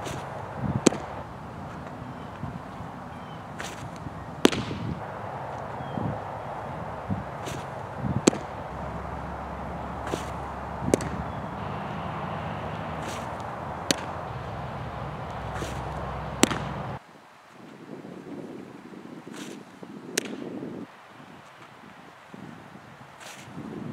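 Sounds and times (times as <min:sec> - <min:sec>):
ball smacking into a mitt: 0:00.0 - 0:01.2, 0:03.6 - 0:04.9, 0:07.4 - 0:08.5, 0:10.0 - 0:11.4, 0:15.3 - 0:16.9
outdoor background noise: 0:00.0 - 0:23.9.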